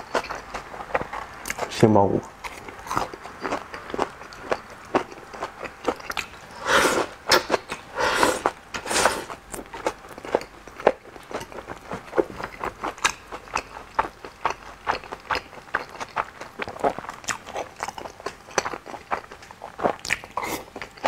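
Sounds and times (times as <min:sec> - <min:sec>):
loud noodle slurps: 0:06.5 - 0:09.4.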